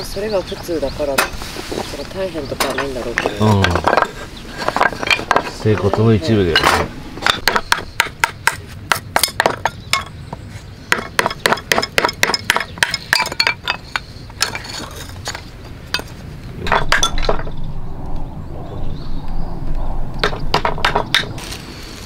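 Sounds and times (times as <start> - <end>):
hatchet splitting wood: 6.6 - 10.1, 10.9 - 13.8.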